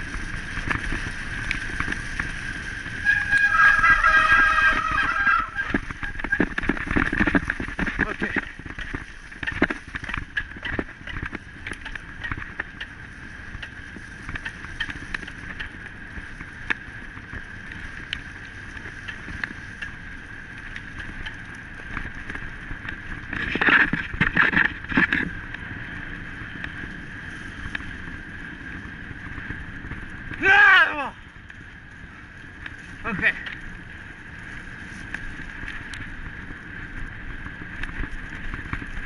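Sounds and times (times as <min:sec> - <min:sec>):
wind on microphone: 0:00.0 - 0:12.7
rattles and clicks: 0:00.0 - 0:15.9, 0:20.6 - 0:25.6
wheels crunching on wet dirt: 0:00.0 - 0:39.0.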